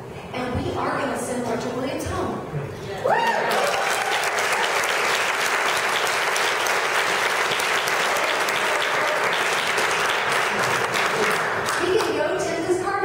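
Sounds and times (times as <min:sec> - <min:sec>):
audience applauding: 0:03.2 - 0:12.2.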